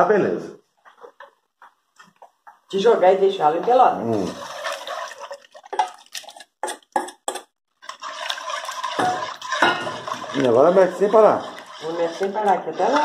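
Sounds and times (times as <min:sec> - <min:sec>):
spoon scraping and sloshing in pot: 0:03.4 - 0:13.0
slurry poured into boiling water: 0:03.6 - 0:07.1, 0:07.7 - 0:13.0
clicks and knocks against pot: 0:05.5 - 0:13.0.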